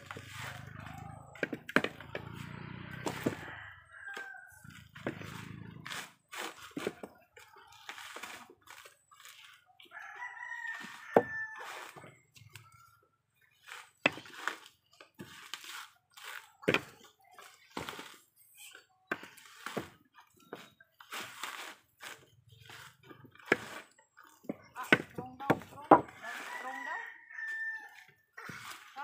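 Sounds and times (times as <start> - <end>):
rooster crowing: 2.9 - 4.7, 9.9 - 12.0, 26.1 - 28.1.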